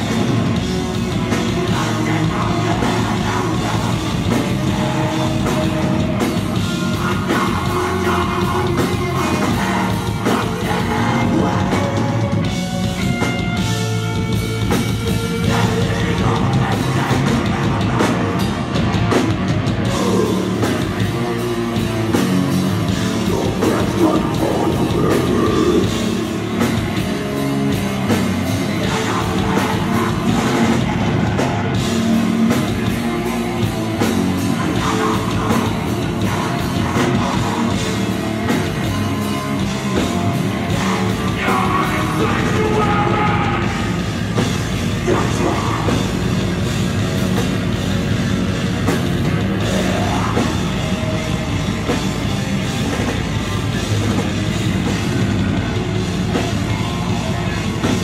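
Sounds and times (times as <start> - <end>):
distorted electric guitar: 0.0 - 58.0
drum kit: 0.0 - 58.0
person singing into a microphone: 1.1 - 13.0, 15.3 - 18.5, 19.8 - 22.0, 22.9 - 26.8, 28.6 - 39.1, 40.0 - 44.1, 44.9 - 46.2.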